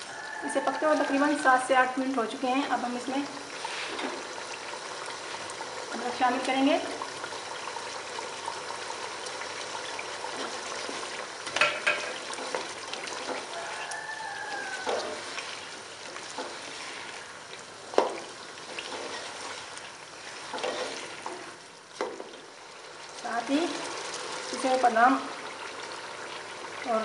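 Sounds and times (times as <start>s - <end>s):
food sizzling and bubbling in a pot: 0.0s - 27.0s
spoon knocking against a pot: 11.6s - 12.2s.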